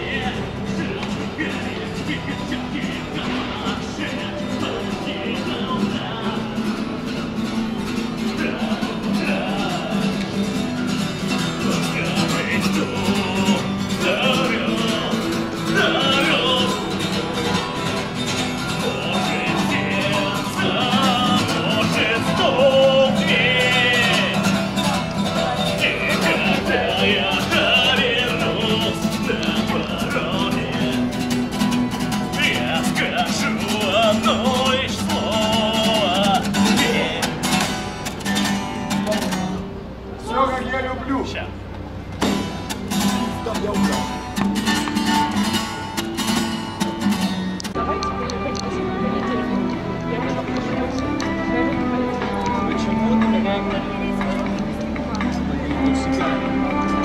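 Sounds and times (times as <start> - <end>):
acoustic guitar: 0.0 - 57.0
person singing: 11.5 - 31.2.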